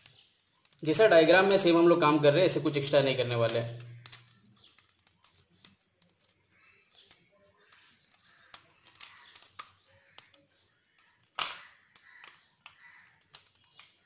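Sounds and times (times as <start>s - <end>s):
screwdriver clicking and scraping: 3.5s - 14.0s.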